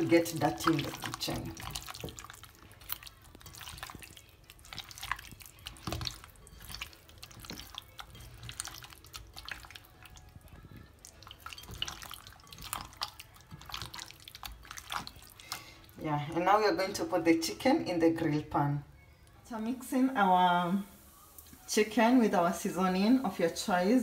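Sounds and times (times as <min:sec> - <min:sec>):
hands squelching raw chicken: 0:00.0 - 0:16.0.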